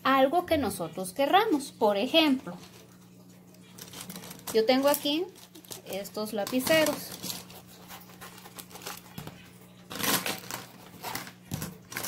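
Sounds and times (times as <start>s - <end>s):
plastic pens clattering onto paper: 3.8s - 7.5s.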